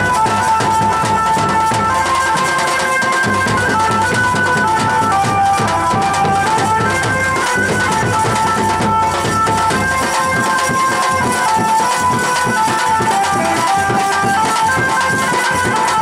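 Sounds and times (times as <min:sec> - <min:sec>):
high held melody: 0:00.0 - 0:16.0
large drums beating dance rhythm: 0:00.0 - 0:16.0.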